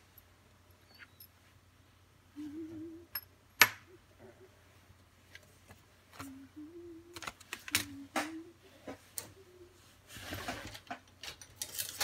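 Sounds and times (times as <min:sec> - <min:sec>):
faint wavering low hum: 0:00.0 - 0:05.1, 0:05.9 - 0:07.2.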